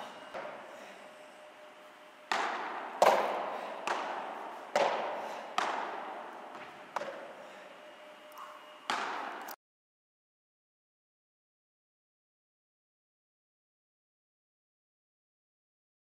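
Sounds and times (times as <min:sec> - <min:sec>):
padel ball hits echoing: 0:02.3 - 0:07.2, 0:08.9 - 0:09.4.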